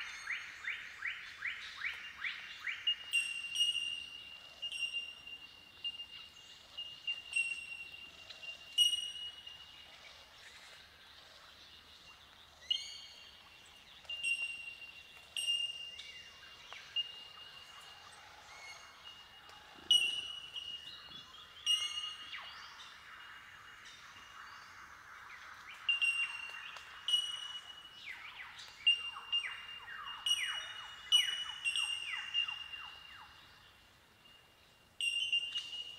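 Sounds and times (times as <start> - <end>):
bell-like bird calls: 2.8 - 6.1, 7.1 - 9.7, 14.1 - 22.6, 25.8 - 28.1, 28.9 - 33.4, 35.0 - 35.9.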